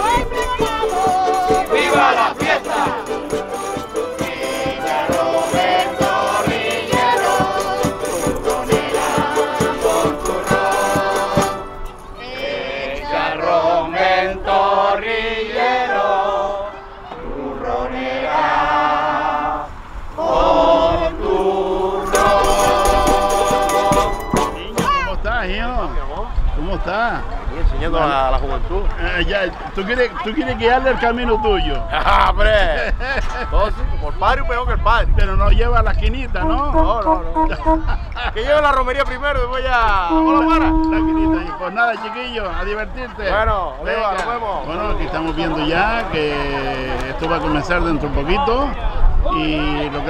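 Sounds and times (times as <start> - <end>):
quick rhythmic percussion: 0.0 - 12.1, 22.0 - 25.1
group of voices singing: 0.0 - 25.1.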